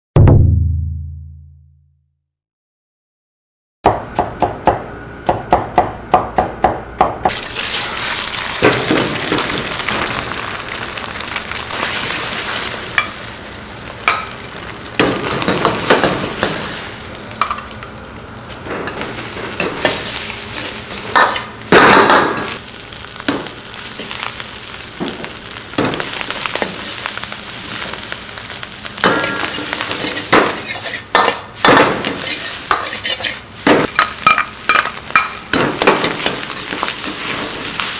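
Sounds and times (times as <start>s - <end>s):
rice sizzling in a wok: 7.3s - 37.9s
metal ladle scraping wok: 29.3s - 31.4s, 32.1s - 33.5s.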